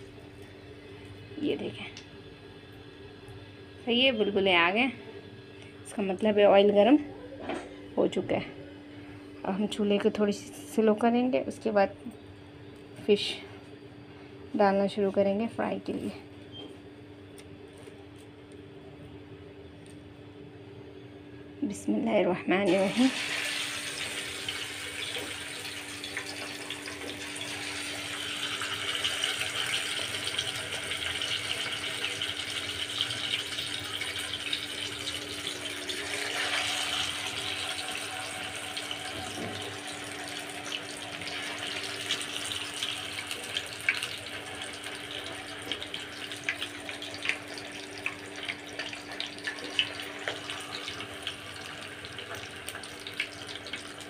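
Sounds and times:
fish frying in hot oil: 22.7s - 54.0s.

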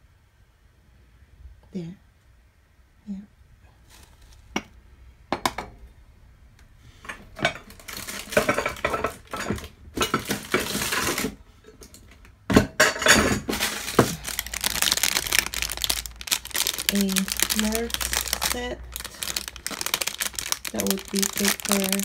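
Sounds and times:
crinkling and rustling: 3.8s - 4.6s, 7.4s - 12.4s, 13.0s - 22.0s.

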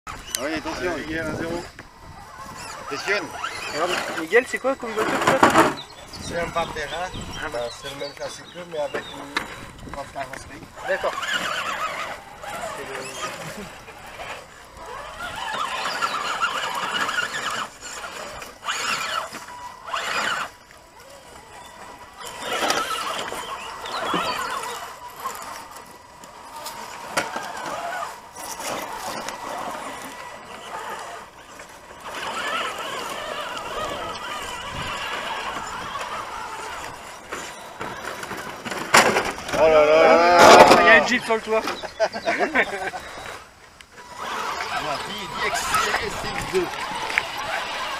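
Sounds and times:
electric motor whine: 0.1s - 47.9s.

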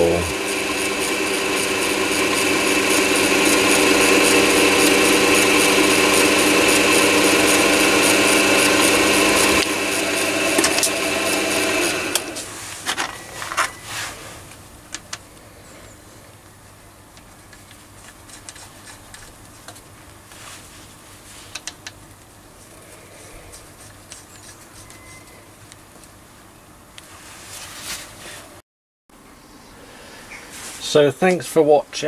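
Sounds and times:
lathe motor whining: 0.0s - 13.8s.

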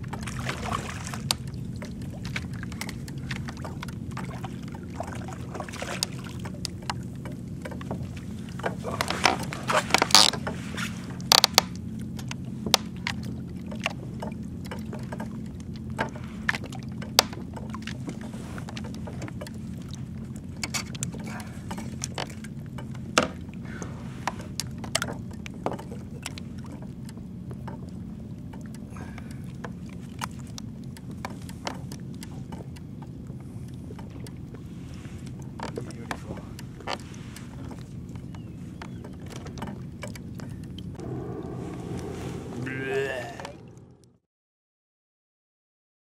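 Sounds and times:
water splashes: 0.0s - 44.2s
clicks and knocks on kayak: 6.0s - 19.6s, 20.6s - 23.4s, 24.2s - 27.9s, 35.3s - 40.5s
steady low hum: 40.4s - 44.2s.

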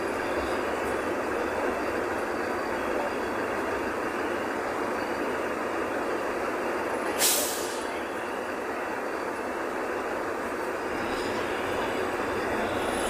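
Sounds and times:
bus running noise: 0.0s - 13.0s
air brakes hissing: 7.0s - 8.0s.

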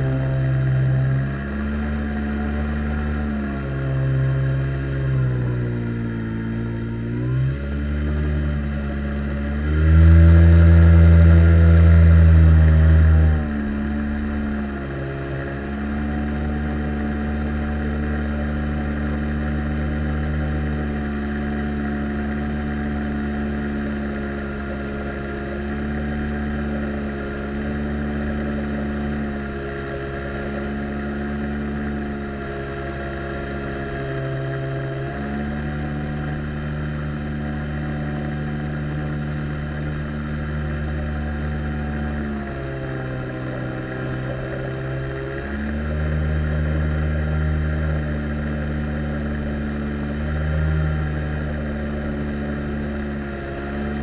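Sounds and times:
outboard jet motor running: 0.0s - 54.0s.

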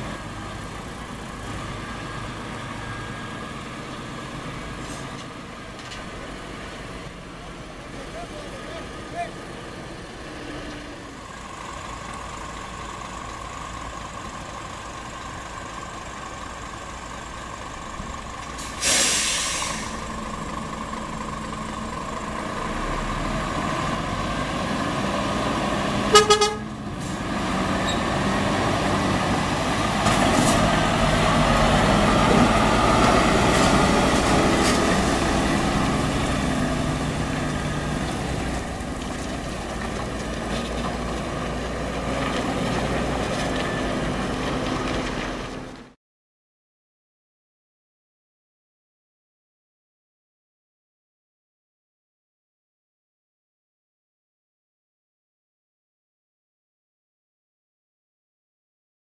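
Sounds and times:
diesel truck engine running: 0.0s - 46.0s
air brake hiss: 18.6s - 20.1s
truck horn toot: 26.1s - 26.8s.

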